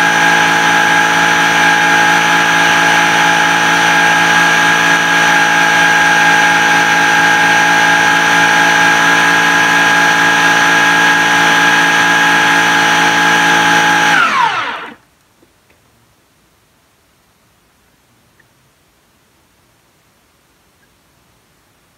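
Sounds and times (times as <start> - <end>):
blender running and winding down: 0.0 - 15.0.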